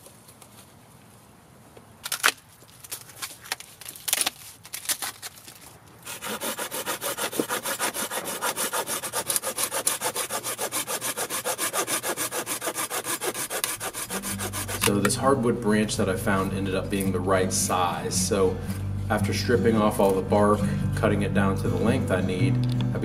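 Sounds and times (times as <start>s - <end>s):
pull saw cutting branch: 6.0s - 15.2s.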